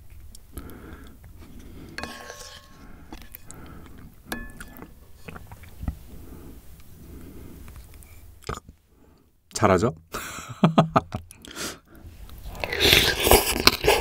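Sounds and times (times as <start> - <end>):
spoon and chopsticks knocking bowl: 2.0 - 2.8
chewing and mouth sounds: 12.5 - 14.0.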